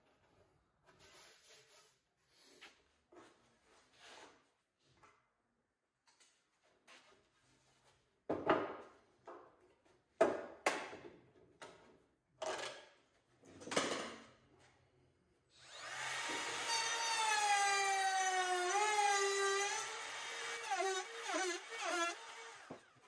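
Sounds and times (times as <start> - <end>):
router whining: 15.6 - 23.0.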